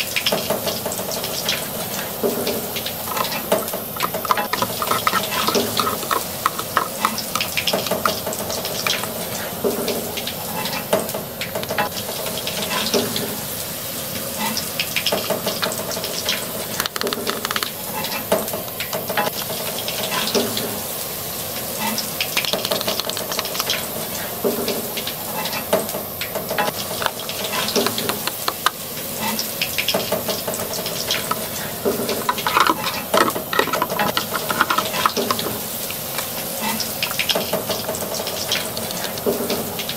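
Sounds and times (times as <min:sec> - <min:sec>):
frying sizzle sound effect: 0:00.3 - 0:39.9
plastic clicks and scrapes: 0:02.8 - 0:09.5, 0:16.7 - 0:19.6, 0:22.4 - 0:23.8, 0:26.5 - 0:28.8, 0:30.7 - 0:39.3.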